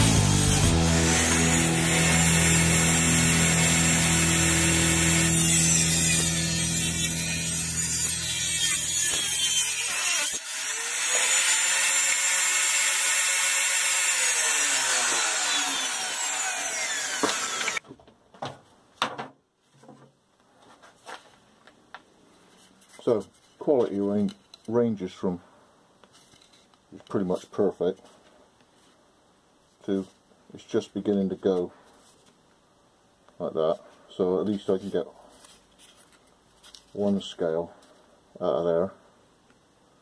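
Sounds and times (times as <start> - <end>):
table saw cutting wood: 0.0 - 17.8.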